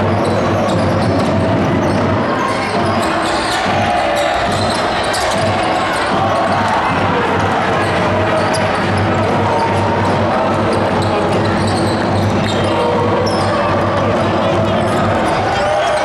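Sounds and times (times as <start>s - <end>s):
crowd voices din: 0.0s - 16.0s.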